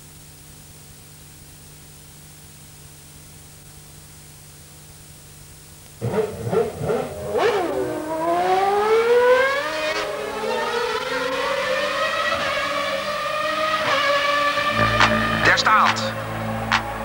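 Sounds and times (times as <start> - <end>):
car engine revving: 6.0 - 17.0.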